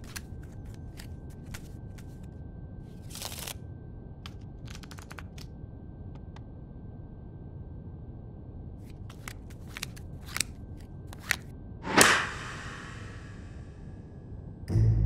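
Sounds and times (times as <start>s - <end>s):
cards clicking on wooden desk: 4.7s - 5.4s
cards slapping down with swish: 11.8s - 13.4s
music with low drum beats: 14.7s - 15.0s.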